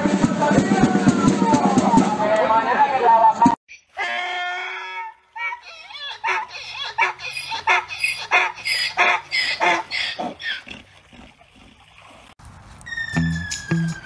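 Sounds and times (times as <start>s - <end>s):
donkey braying: 4.0s - 11.8s.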